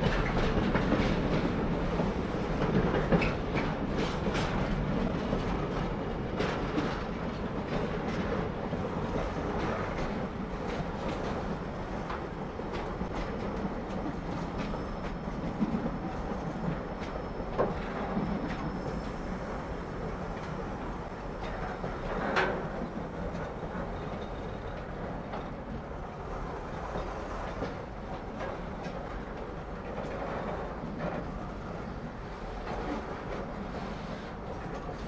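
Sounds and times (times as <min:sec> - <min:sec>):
freight train wheels rumbling on rail: 0:00.0 - 0:35.0.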